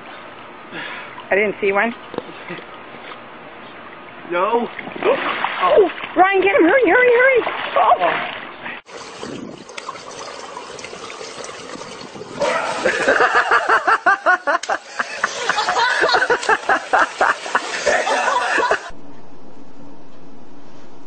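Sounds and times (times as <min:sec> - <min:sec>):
steady low hum: 0:08.5 - 0:21.0
person laughing hard: 0:12.4 - 0:18.9.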